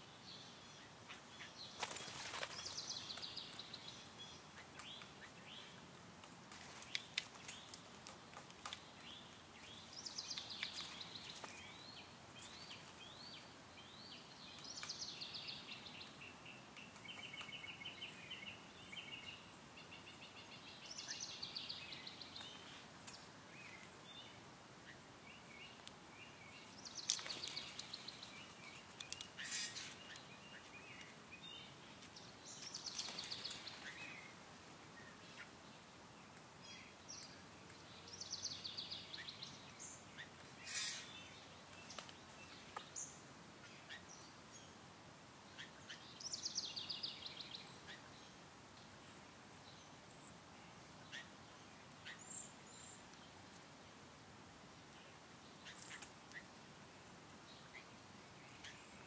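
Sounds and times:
faint outdoor hiss: 0.0s - 59.0s
songbird warbling: 24.8s - 31.1s, 38.1s - 41.4s
bird chirps: 38.0s - 44.8s.

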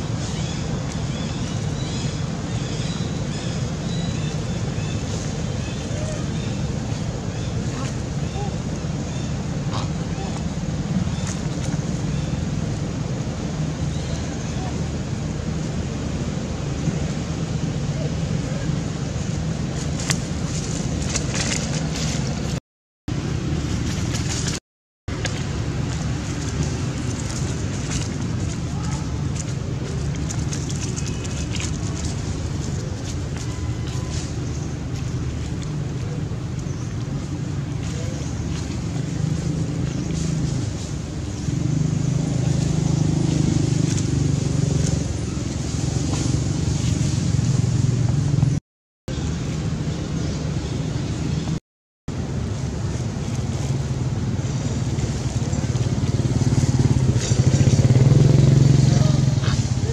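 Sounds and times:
motor engine humming: 0.0s - 50.8s, 52.1s - 59.9s
dry leaves crackling: 19.7s - 22.5s.

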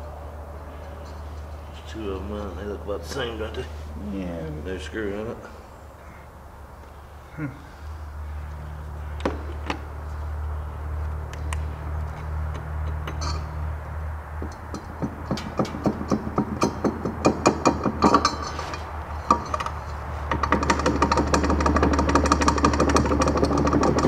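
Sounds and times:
steady low hum: 0.0s - 24.0s
rapid mechanical rattle: 14.5s - 24.0s.

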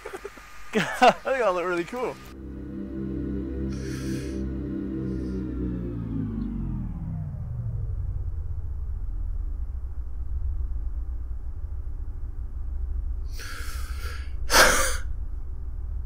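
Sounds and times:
low steady hum: 0.0s - 16.0s
soft breath: 3.7s - 4.4s, 13.3s - 15.1s
man snorting with laughter: 13.4s - 15.0s.

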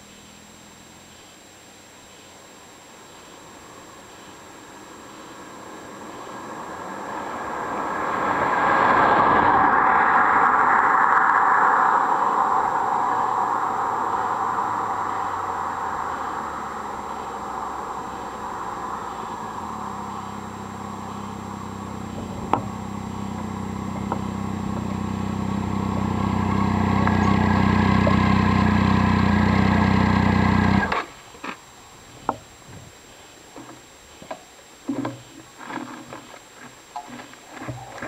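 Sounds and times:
motorcycle engine running: 13.4s - 31.1s.

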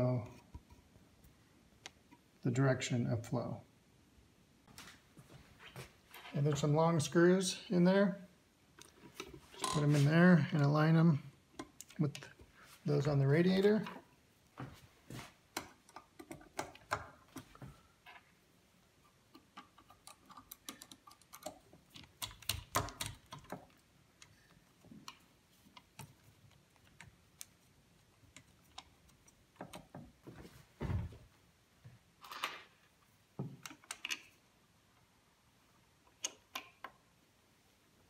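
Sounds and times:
screws and plastic fan frames clicking: 19.2s - 24.4s.

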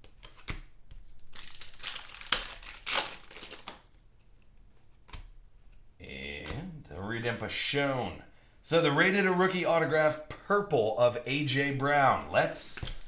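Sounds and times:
foil wrappers crinkling: 1.2s - 3.9s.

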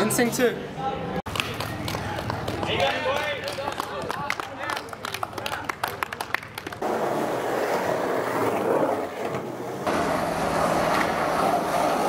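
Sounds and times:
skateboard wheels rolling on pavement: 1.3s - 12.0s
skateboard clicks and taps: 10.5s - 12.0s.

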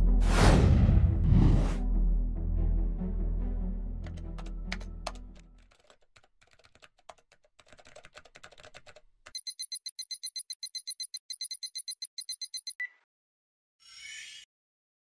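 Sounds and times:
low film score music: 0.0s - 5.6s
computer keyboard typing: 4.0s - 12.8s
rapid high electronic beeping: 9.4s - 12.8s.

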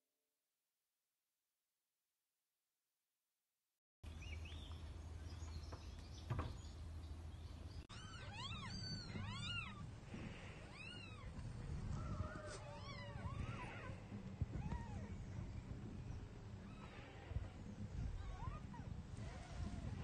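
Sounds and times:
kittens mewing: 7.9s - 15.5s.

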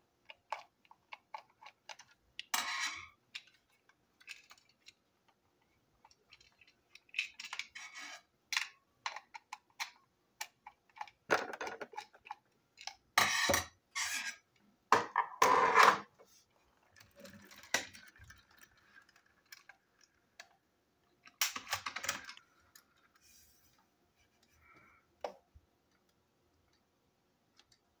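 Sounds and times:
plastic toy parts clicking and rattling: 0.1s - 14.4s, 16.8s - 23.3s.

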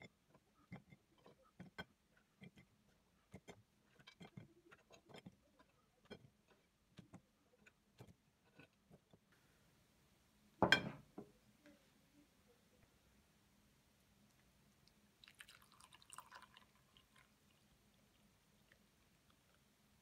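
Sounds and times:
cookies clicking on ceramic plate: 0.0s - 9.3s
knock on plate: 10.6s - 11.3s.

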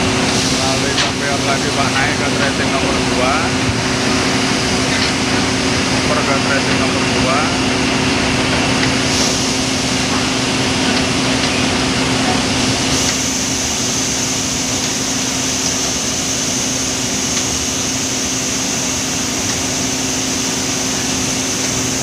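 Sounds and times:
conveyor chain running: 0.0s - 22.0s
mill machinery din: 0.0s - 22.0s.

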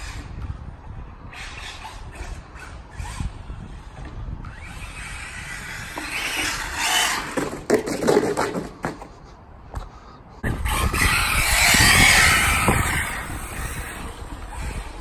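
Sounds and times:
toy car driving on tarmac: 0.0s - 9.2s, 10.4s - 15.0s
sharp knocks and clatter: 7.4s - 9.1s.

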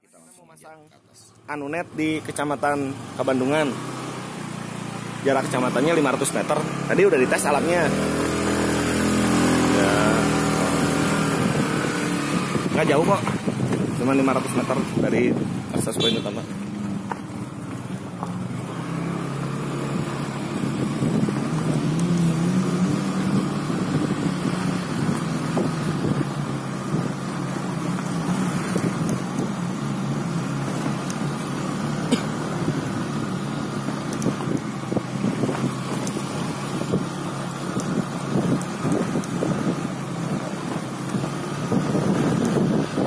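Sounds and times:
motorcycle engine running: 2.0s - 43.0s
knocks and rattles from road: 10.4s - 43.0s.

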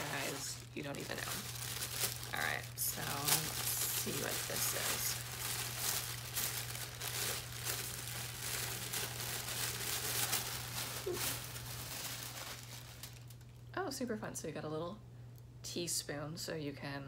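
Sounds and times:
tissue paper rustling: 0.0s - 13.4s.

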